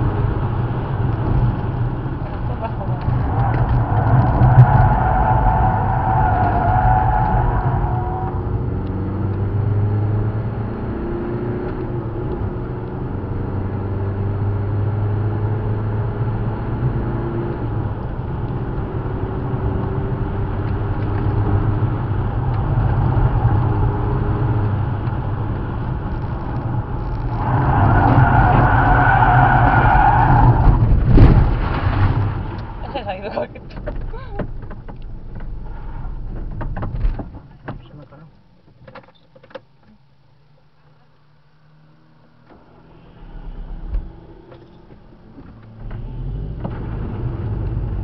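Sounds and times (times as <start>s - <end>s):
car engine revving: 0.0s - 36.6s, 41.0s - 48.0s.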